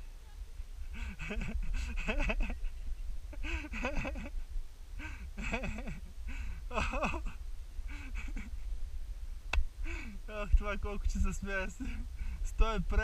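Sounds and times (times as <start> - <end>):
wind rumble on microphone: 0.0 - 13.0
man laughing breathlessly: 0.8 - 8.7, 9.8 - 10.4, 11.6 - 12.5.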